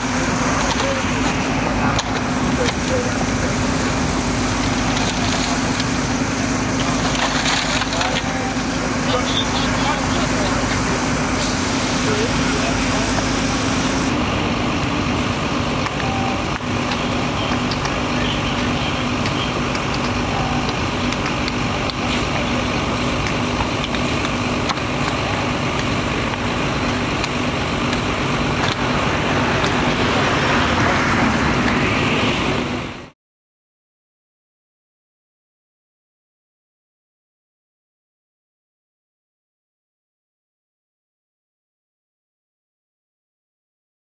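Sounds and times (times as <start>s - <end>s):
fire crackling: 0.0s - 33.0s
fire engine pumps humming: 0.0s - 33.2s
hose jet hissing: 2.3s - 14.1s.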